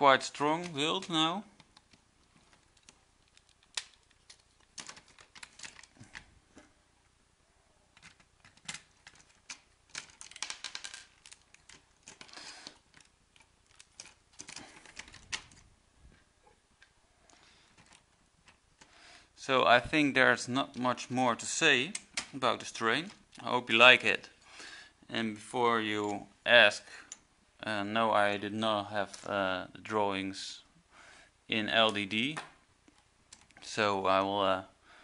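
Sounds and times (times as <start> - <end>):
plastic toy bricks clicking: 8.0 - 15.6.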